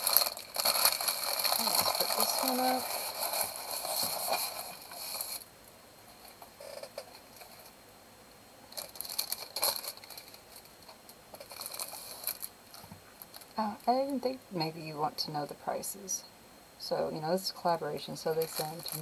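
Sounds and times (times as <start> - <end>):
plastic packaging crinkling: 0.0 - 5.5, 8.7 - 13.6, 18.2 - 19.0.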